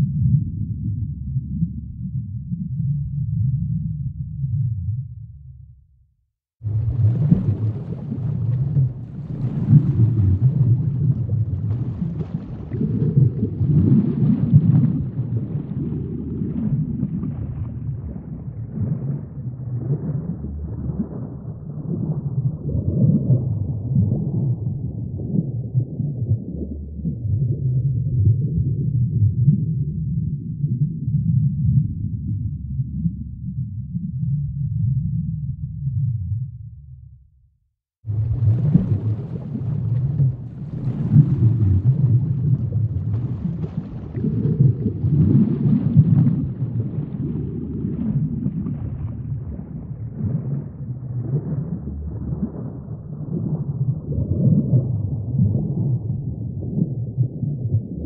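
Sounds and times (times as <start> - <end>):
faint crackles: 6.6 - 22.2, 38.1 - 54.8
water gurgling: 6.6 - 29.6, 38.1 - 58.0.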